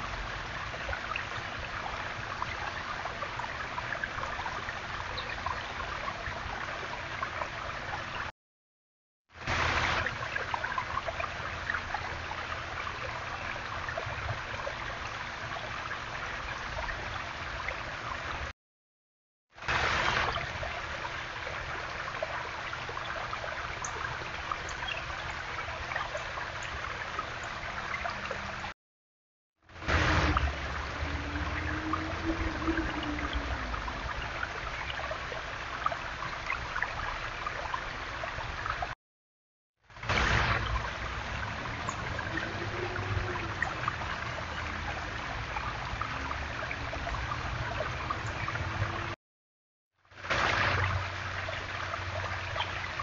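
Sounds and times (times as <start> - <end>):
water trickling over stones: 0.0 - 8.3, 9.3 - 18.5, 19.6 - 28.7, 29.6 - 39.0, 39.8 - 49.2, 50.0 - 53.0.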